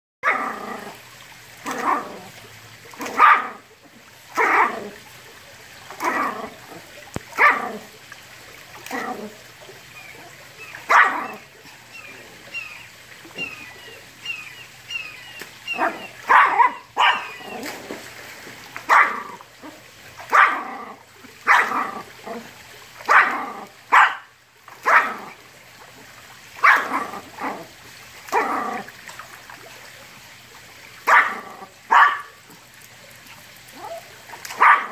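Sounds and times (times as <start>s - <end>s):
small dog barking: 3.0s - 3.6s, 4.4s - 4.8s, 7.4s - 7.8s, 10.8s - 11.4s, 15.7s - 17.6s, 18.9s - 19.4s, 20.3s - 22.1s, 23.1s - 25.3s, 26.6s - 27.7s, 31.1s - 32.4s, 33.8s - 34.9s.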